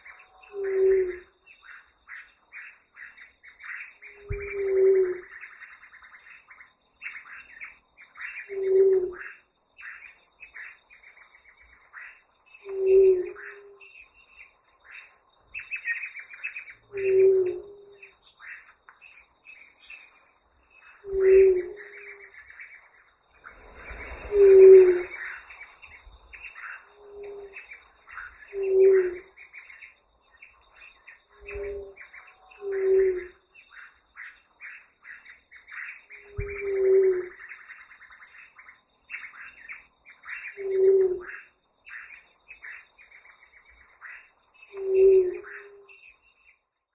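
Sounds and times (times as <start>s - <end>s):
dove low hoots: 0.0s - 1.4s, 4.1s - 5.3s, 8.4s - 9.2s, 12.6s - 13.8s, 16.9s - 18.1s, 21.0s - 22.2s, 23.7s - 25.6s, 26.9s - 27.8s, 28.4s - 29.3s, 31.4s - 33.4s, 36.2s - 37.4s, 40.6s - 41.3s, 44.7s - 45.9s
birds chirping: 0.0s - 46.9s.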